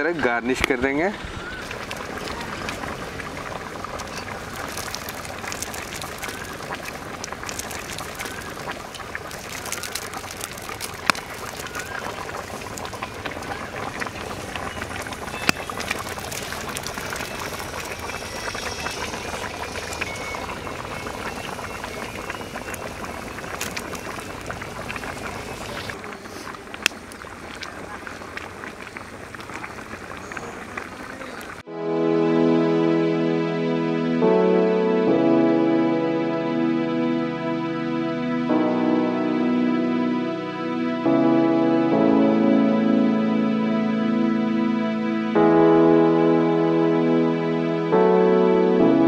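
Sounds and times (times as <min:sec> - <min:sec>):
pot boiling and bubbling: 0:00.0 - 0:31.7.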